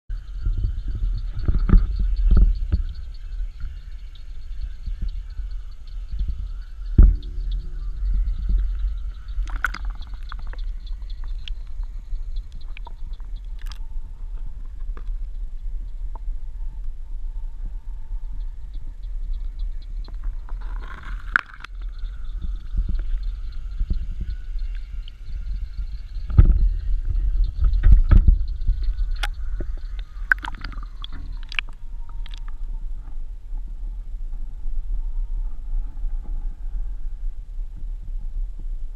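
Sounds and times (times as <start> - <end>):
muffled underwater rumbling and knocking: 0.1 - 38.9
water sloshing and gurgling: 0.4 - 15.3, 20.0 - 33.2
sharp clicks: 27.6 - 32.6.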